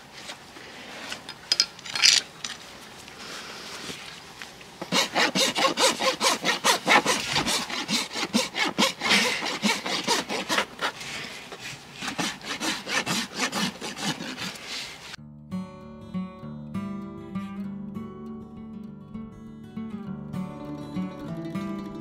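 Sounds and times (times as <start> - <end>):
rasp filing a hoof: 4.8 - 15.2
acoustic guitar music: 15.2 - 22.0.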